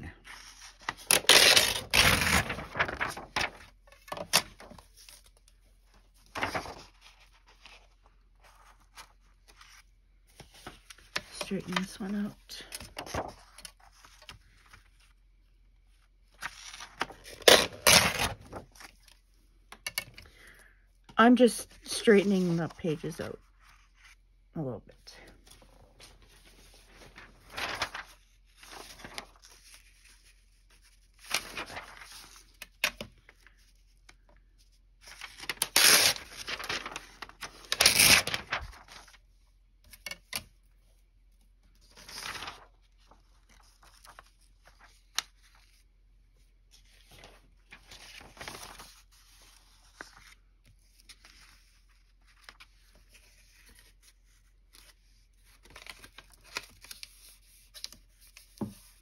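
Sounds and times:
paper rustling: 0:00.2 - 0:15.2, 0:15.8 - 0:20.3, 0:25.2 - 0:59.0.

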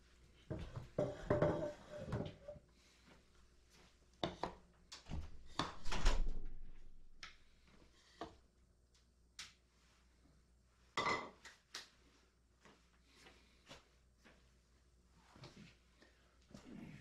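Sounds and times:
kitchen items knocking and clattering: 0:00.6 - 0:02.5.

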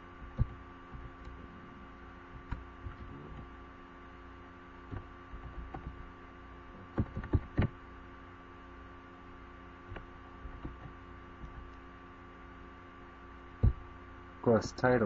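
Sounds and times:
electrical hum: 0:00.0 - 0:15.0
knocks and clicks: 0:00.2 - 0:01.4, 0:02.3 - 0:03.5, 0:04.9 - 0:06.1, 0:06.8 - 0:07.8, 0:09.9 - 0:11.8, 0:13.6 - 0:13.9.

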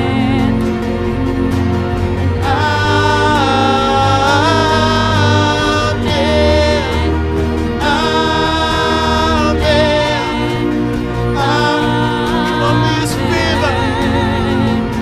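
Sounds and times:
acoustic and electric guitars: 0:00.0 - 0:15.0
bass guitar: 0:00.0 - 0:15.0
keyboard: 0:00.0 - 0:15.0
voices singing held notes: 0:00.0 - 0:15.0.

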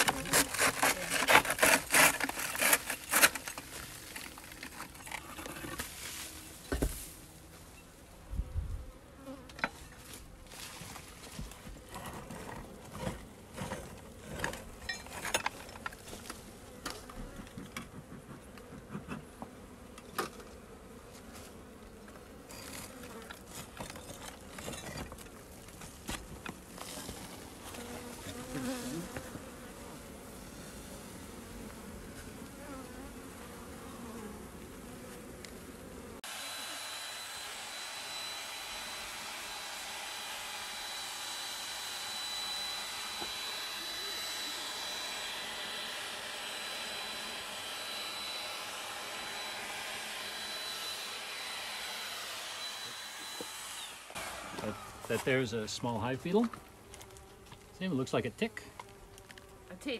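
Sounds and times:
knocks and scrapes of stones: 0:00.0 - 0:07.2, 0:09.6 - 0:19.3, 0:22.4 - 0:29.3, 0:54.2 - 0:57.8
bees buzzing: 0:26.6 - 0:59.9.

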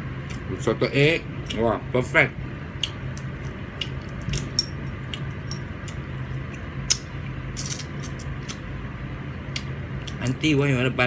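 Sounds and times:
steady low hum: 0:00.0 - 0:11.0
prawn shells cracking: 0:07.6 - 0:08.6.

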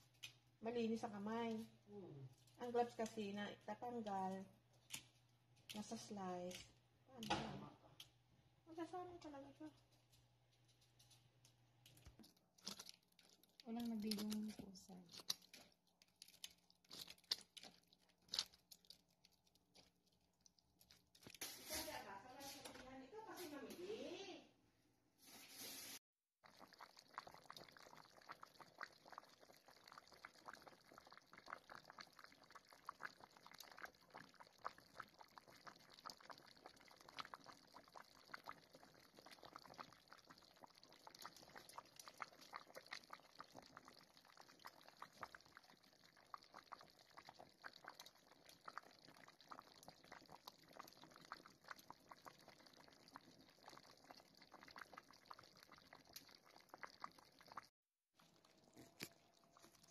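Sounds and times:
sauce bubbling and popping: 0:00.0 - 0:00.6, 0:09.8 - 0:22.0, 0:26.4 - 0:59.9.

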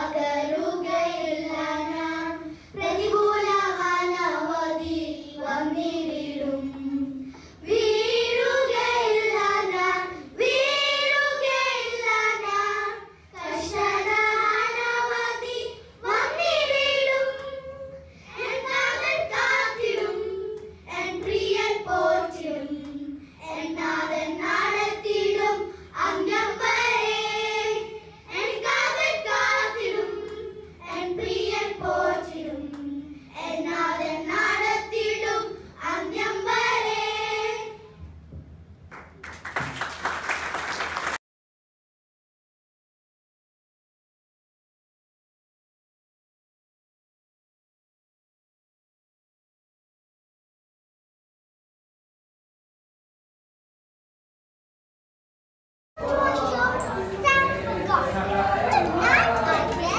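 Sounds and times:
children singing: 0:00.0 - 0:37.9, 0:56.0 - 0:59.9.

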